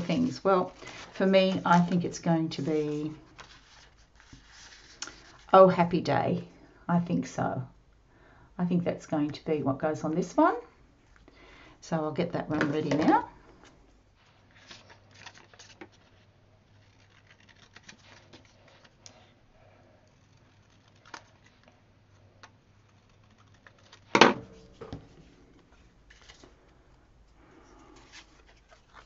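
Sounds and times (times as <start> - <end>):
paper rustling: 0.0 - 5.5, 12.8 - 19.4, 20.0 - 26.8, 27.6 - 29.0.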